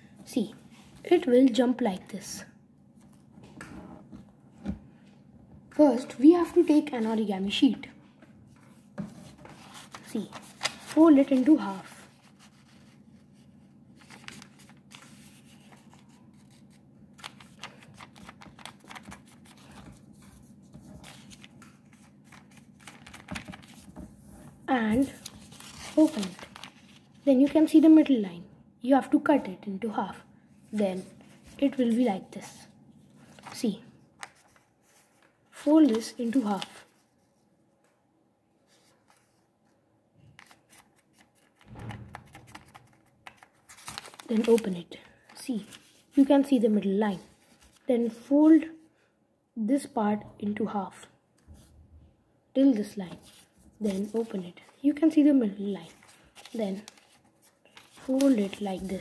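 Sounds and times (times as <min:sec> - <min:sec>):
paper crackling and rustling: 0:08.6 - 0:27.6, 0:33.2 - 0:37.2, 0:40.3 - 0:46.5, 0:47.1 - 0:47.9, 0:53.1 - 0:55.1, 0:55.7 - 0:59.0.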